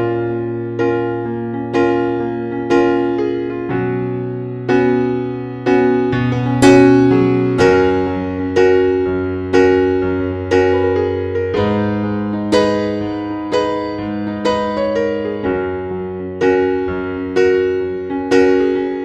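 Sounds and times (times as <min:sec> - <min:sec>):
slow piano piece: 0:00.0 - 0:19.0.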